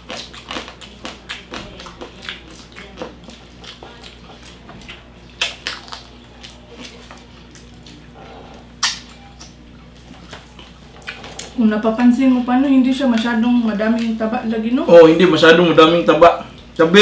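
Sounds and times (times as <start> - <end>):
chewing with wet clicks and crunches: 0.0 - 11.6.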